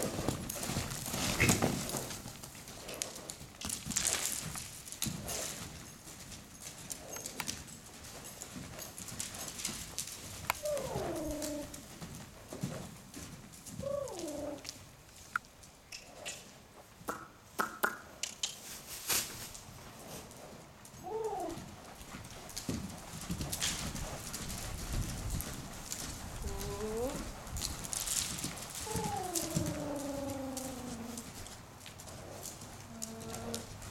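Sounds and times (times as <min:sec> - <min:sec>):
horse hoofbeats on sand: 0:00.0 - 0:14.9, 0:19.2 - 0:33.9
horse calls: 0:01.2 - 0:02.0, 0:10.6 - 0:11.7, 0:21.0 - 0:21.6, 0:26.4 - 0:27.2, 0:28.8 - 0:31.2, 0:32.9 - 0:33.8.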